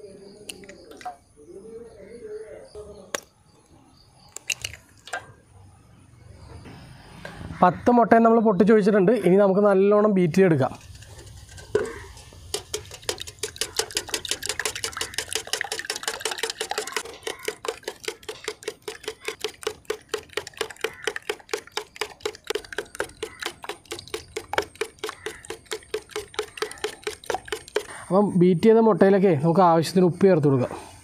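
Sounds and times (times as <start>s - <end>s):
whisk clicking against metal bowl: 10.8s - 28.0s.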